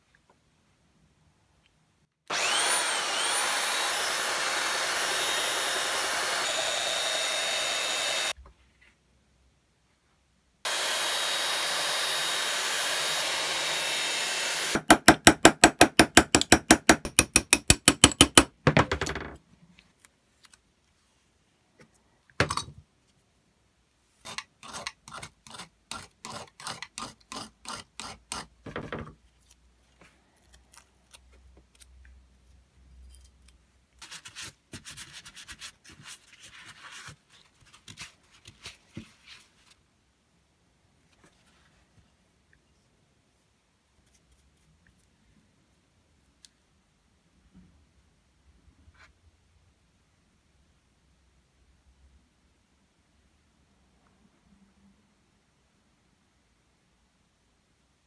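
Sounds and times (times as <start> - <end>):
belt sander running: 2.3 - 8.3, 10.7 - 15.1
hammer tapping metal punch: 14.8 - 18.5.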